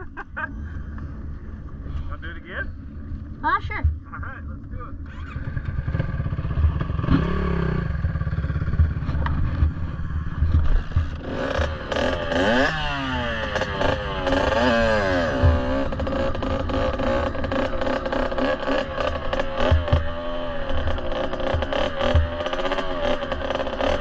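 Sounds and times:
two-stroke motorcycle engine revving: 5.0s - 24.0s.

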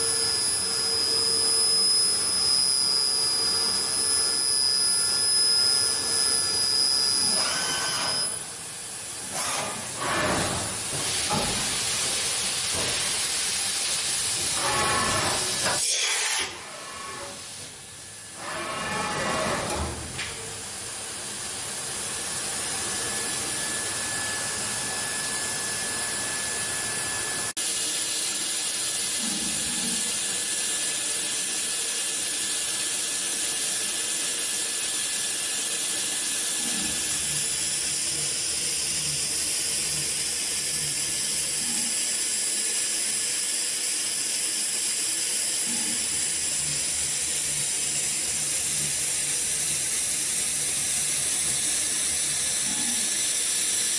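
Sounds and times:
faint steady whistle: 0.0s - 8.4s, 22.7s - 27.5s.

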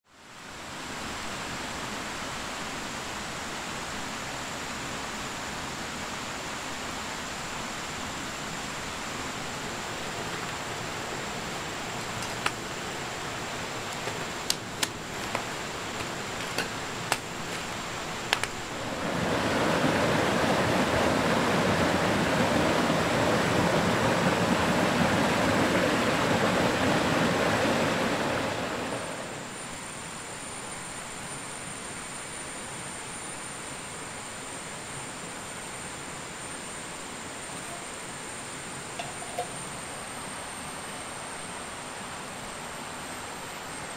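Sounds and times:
river rushing over rocks: 0.3s - 30.8s
thin high whine: 36.2s - 41.7s.

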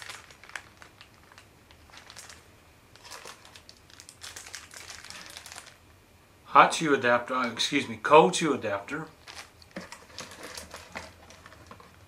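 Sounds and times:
plastic bag crinkling: 0.0s - 5.8s, 9.1s - 12.0s.

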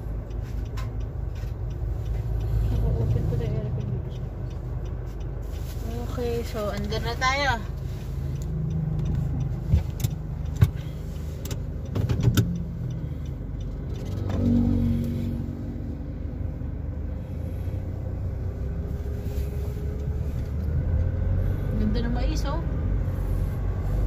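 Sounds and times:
car engine rumble from inside: 0.0s - 24.0s
sharp clicks and knocks: 8.4s - 14.6s.

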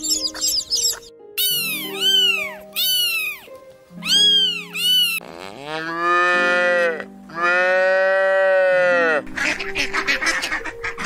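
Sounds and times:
soft background music: 0.0s - 11.0s
cat meowing: 1.4s - 5.2s
cow mooing: 5.2s - 9.2s.

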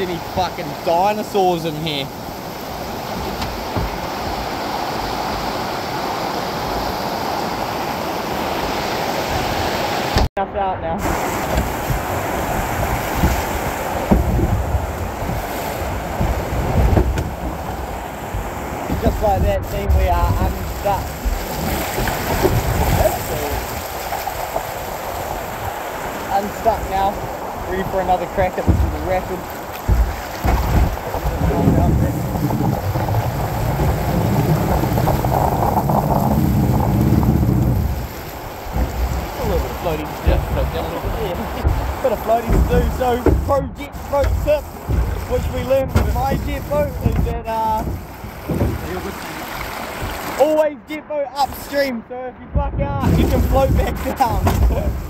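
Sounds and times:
river rapid rushing water: 0.0s - 10.3s, 11.0s - 52.0s, 53.0s - 55.0s
wind buffeting microphone: 11.0s - 50.4s, 52.4s - 55.0s
two-stroke boat engine running: 27.1s - 50.4s.

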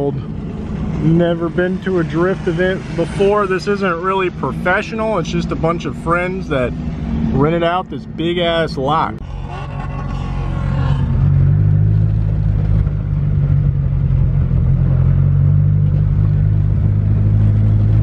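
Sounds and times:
car engine droning: 0.0s - 18.0s.

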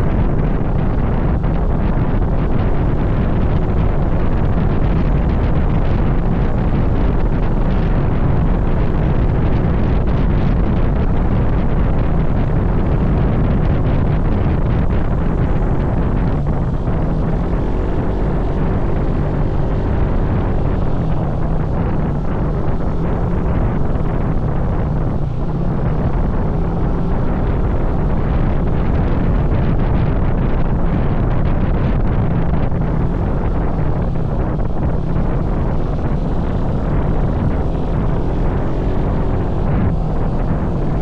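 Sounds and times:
vehicle and road noise: 0.0s - 41.0s
wind buffeting microphone: 0.0s - 41.0s.

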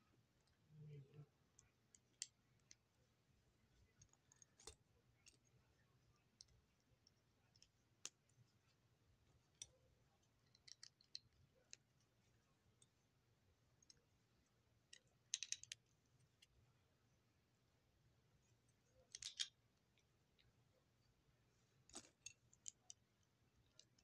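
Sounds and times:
plastic bricks clicking together: 14.9s - 15.8s, 19.1s - 19.5s.

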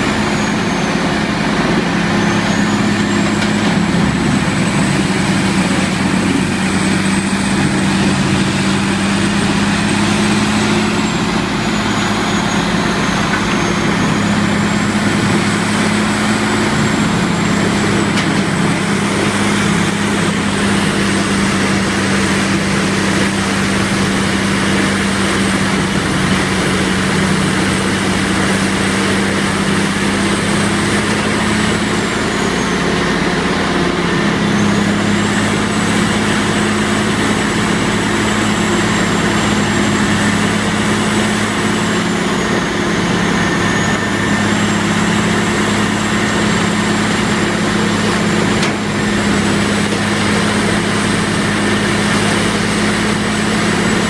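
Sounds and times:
heavy diesel machinery running: 0.0s - 54.0s.

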